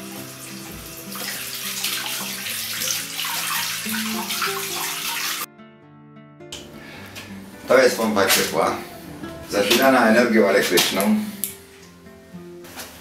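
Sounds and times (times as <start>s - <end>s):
tap water splashing into basin: 0.6s - 5.5s.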